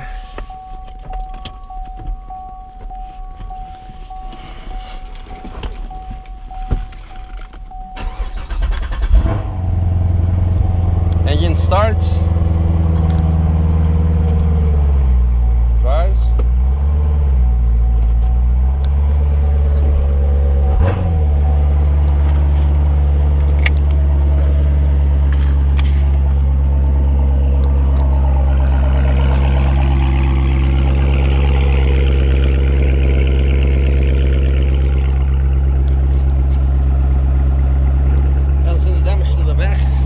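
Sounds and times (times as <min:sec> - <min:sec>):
car engine idling: 0:00.0 - 0:40.0.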